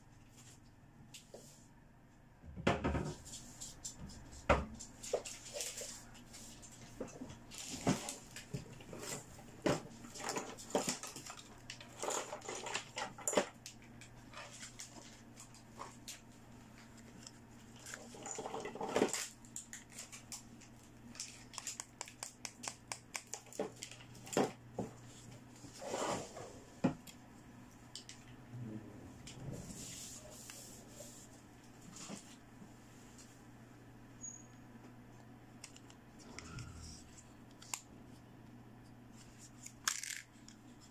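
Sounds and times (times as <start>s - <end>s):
faint steady hum: 0.0s - 40.9s
plastic toys clicking and rattling: 10.2s - 13.6s, 39.8s - 40.6s.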